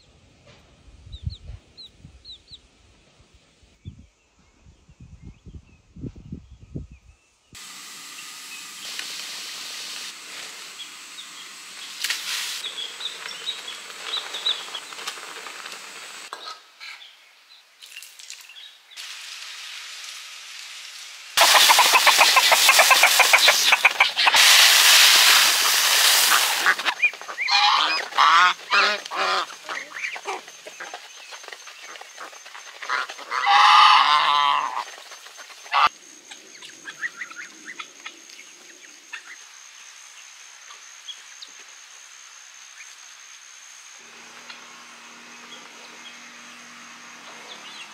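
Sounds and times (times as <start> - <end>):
loud steady rushing hiss: 7.6 - 16.3, 18.7 - 30.1, 38.9 - 47.9
geese honking: 21.4 - 31.0, 31.9 - 35.0.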